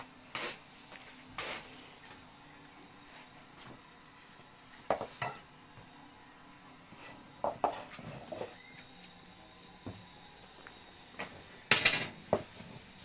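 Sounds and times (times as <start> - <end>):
utensils and dishes clinking: 11.7 - 12.4.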